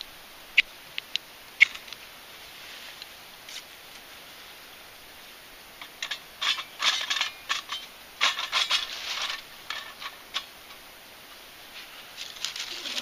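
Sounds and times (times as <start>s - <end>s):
metal stove clinking on stone: 5.8s - 10.8s.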